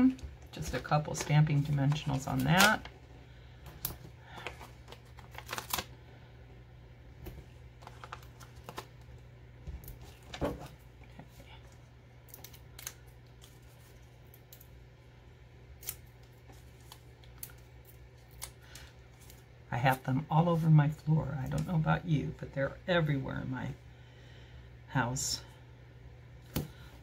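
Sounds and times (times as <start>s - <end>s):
low steady hum: 0.0s - 27.0s
paper rustling: 3.8s - 6.0s, 7.3s - 9.0s.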